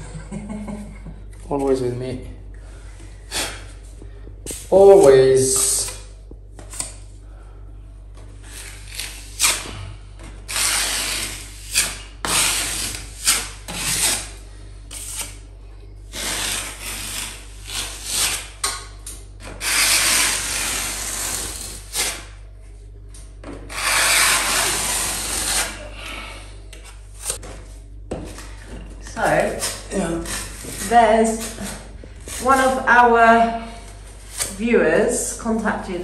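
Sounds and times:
metal knife scraping plaster ceiling: 10.5s - 15.4s, 16.1s - 18.8s, 19.6s - 22.3s, 23.7s - 26.0s, 29.2s - 34.7s.

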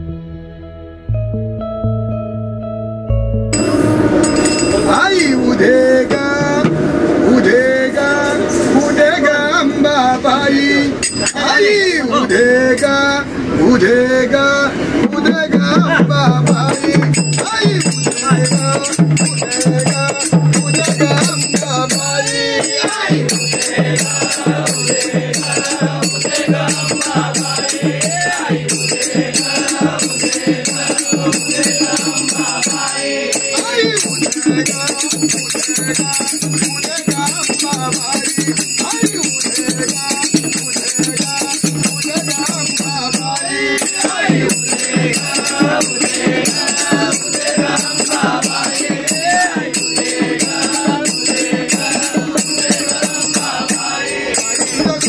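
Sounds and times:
hand cymbals clashing: 3.6s - 6.6s, 11.0s - 11.7s, 16.3s - 55.0s
group of men singing: 3.6s - 55.0s.

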